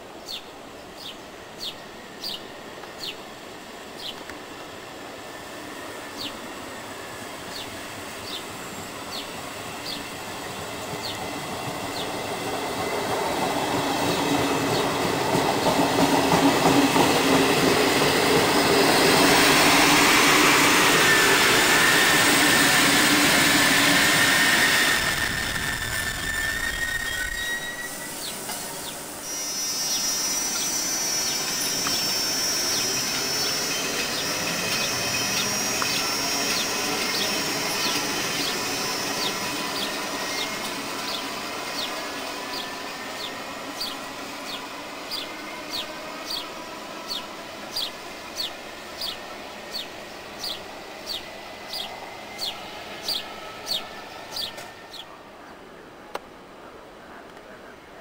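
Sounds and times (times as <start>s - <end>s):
electric train passing: 0.0s - 58.0s
electric train whine: 0.0s - 58.0s
wheel and track noise: 7.4s - 46.4s
wheel squeal: 21.8s - 41.2s.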